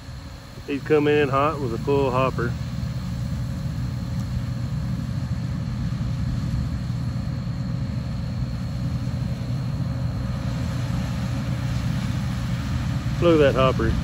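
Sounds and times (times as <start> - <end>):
combine harvester rumbling: 0.0 - 14.0
faint high whine: 0.0 - 14.0.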